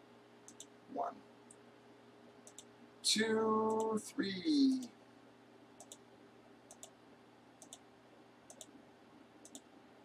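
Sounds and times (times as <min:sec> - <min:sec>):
faint steady hum: 0:00.0 - 0:10.0
computer mouse clicks: 0:00.4 - 0:00.7, 0:02.4 - 0:02.7, 0:05.8 - 0:06.0, 0:06.7 - 0:07.0, 0:07.6 - 0:07.9, 0:08.5 - 0:08.8, 0:09.4 - 0:09.7.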